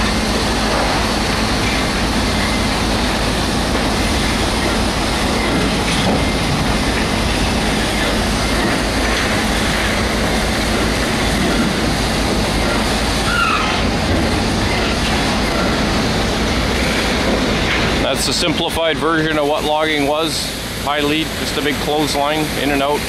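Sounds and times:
sawmill machinery rattling: 0.0s - 23.0s
short machine squeal: 13.2s - 13.8s.

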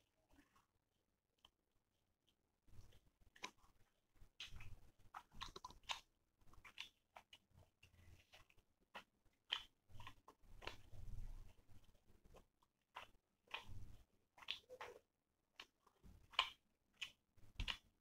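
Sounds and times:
fingers mixing rice on steel plate: 2.7s - 18.0s
wet mouth chewing clicks: 4.4s - 7.4s, 8.2s - 10.8s.

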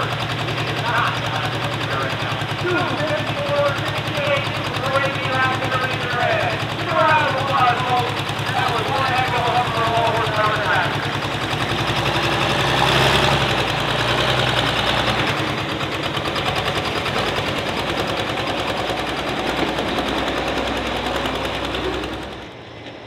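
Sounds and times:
tractor engine at high revs: 0.0s - 23.0s.

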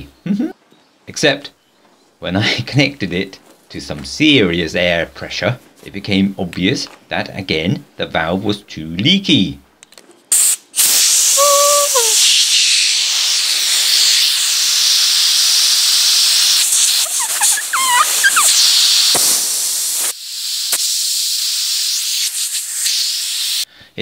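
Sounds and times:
compressed air hissing: 10.3s - 23.7s
whistling squeaks: 11.4s - 12.2s, 16.9s - 19.7s.

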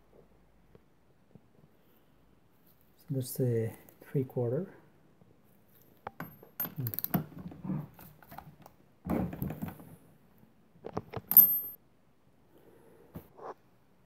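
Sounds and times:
metal socket and wrench clinking: 6.6s - 7.2s, 11.3s - 11.8s.

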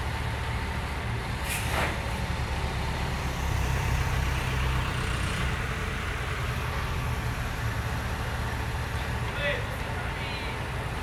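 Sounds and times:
diesel engine running under load: 0.0s - 11.0s.

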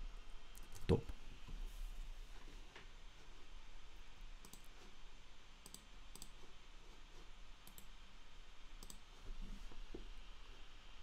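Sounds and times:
computer mouse clicking: 4.4s - 4.8s, 5.6s - 6.4s, 7.6s - 8.0s, 8.8s - 9.1s.

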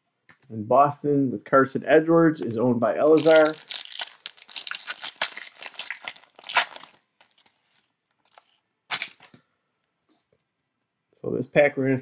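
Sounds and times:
foil wrapper tearing and crinkling: 3.0s - 9.4s.

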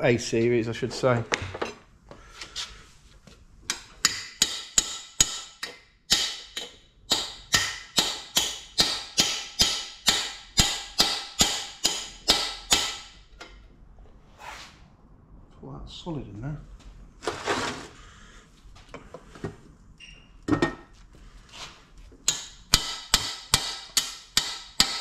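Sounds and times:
hammer striking metal bar: 3.7s - 13.6s, 22.2s - 25.0s.

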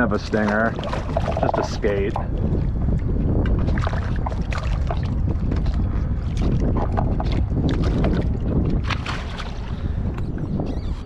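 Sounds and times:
short splashes at waterline: 0.0s - 2.4s, 3.6s - 9.9s
water lapping against kayak: 0.0s - 11.0s
wind rumbling on microphone: 0.0s - 11.0s.

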